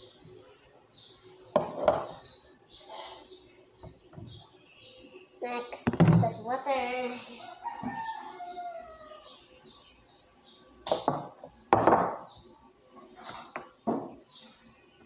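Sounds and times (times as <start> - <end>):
birds chirping faintly: 0.0 - 15.0
knock on wooden table: 10.9 - 12.2, 13.9 - 14.1.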